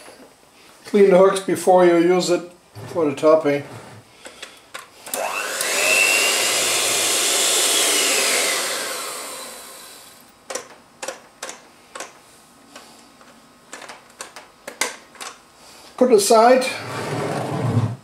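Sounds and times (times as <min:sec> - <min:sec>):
electric hand mixer whining: 0:05.1 - 0:10.2.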